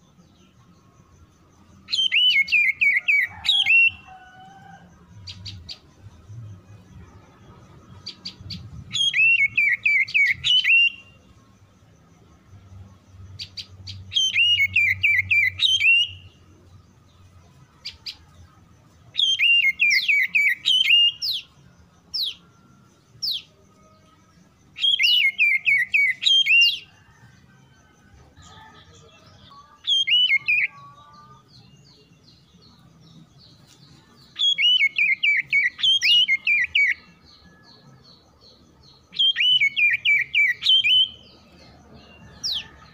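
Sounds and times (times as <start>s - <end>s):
bird song of falling whistled notes: 1.9s - 4.2s, 8.2s - 11.2s, 13.9s - 16.3s, 19.2s - 21.5s, 24.7s - 27.2s, 29.8s - 30.8s, 33.6s - 37.2s, 39.1s - 41.3s.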